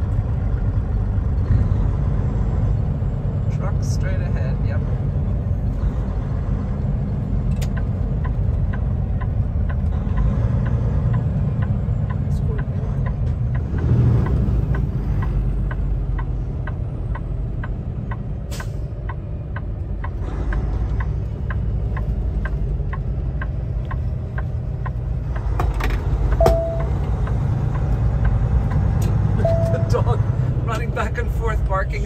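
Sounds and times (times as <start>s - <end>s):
truck engine droning: 0.0s - 32.0s
turn signal clicking: 7.4s - 30.1s
short beep: 26.4s - 27.0s, 29.4s - 30.0s.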